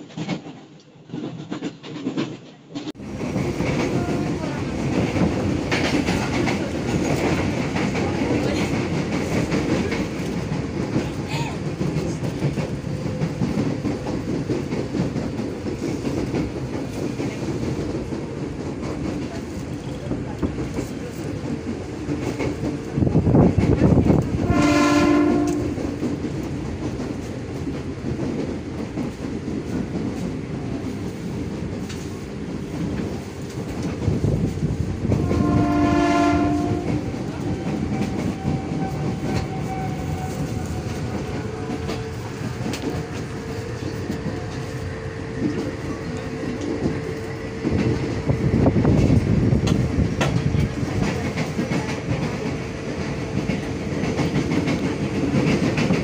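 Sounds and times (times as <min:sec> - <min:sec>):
train rumble: 0:00.0 - 0:56.0
train horn blasts: 0:24.3 - 0:25.8, 0:35.1 - 0:37.2.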